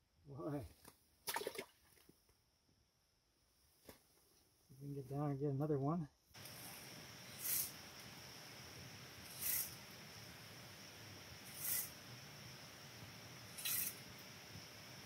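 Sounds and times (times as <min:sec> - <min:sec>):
faint high whine: 0:06.4 - 0:15.0.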